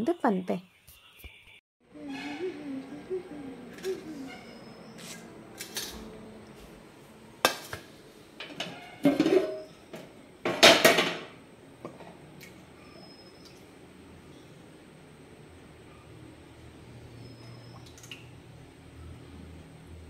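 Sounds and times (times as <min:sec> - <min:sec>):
metal plate and pot clattering: 0:08.4 - 0:09.7, 0:10.5 - 0:11.3.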